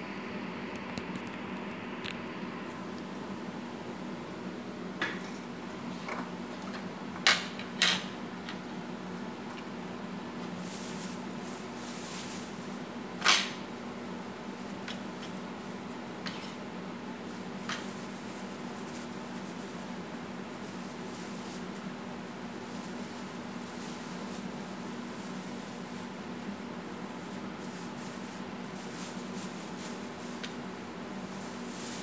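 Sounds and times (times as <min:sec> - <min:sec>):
steady low hum: 0:00.0 - 0:07.2.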